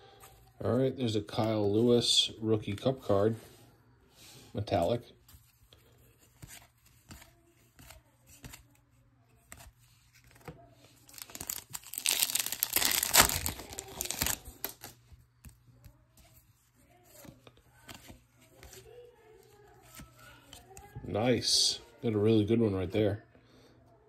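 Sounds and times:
plastic wrapper tearing and crinkling: 10.2s - 15.0s.

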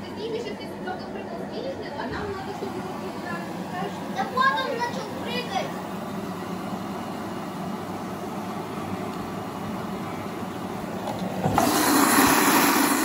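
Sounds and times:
washing machine churning: 0.0s - 13.0s
water rushing hiss: 11.4s - 13.0s.

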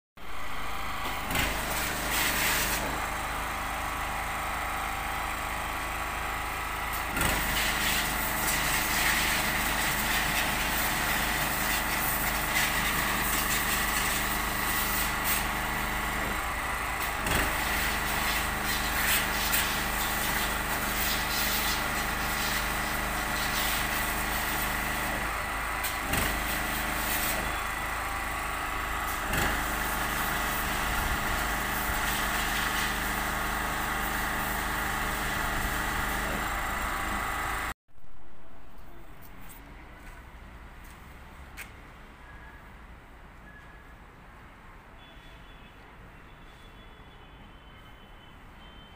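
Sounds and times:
pressure washer running: 0.2s - 37.8s.

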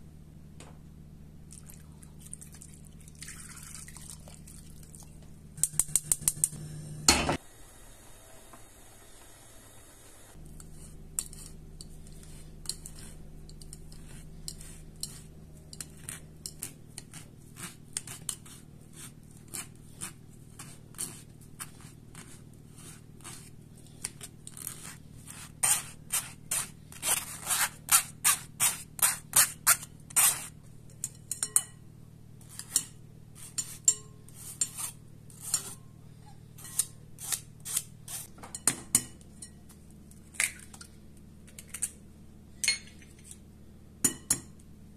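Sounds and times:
metal spoon scraping wire strainer: 10.6s - 31.6s, 32.4s - 35.8s, 36.6s - 38.3s.

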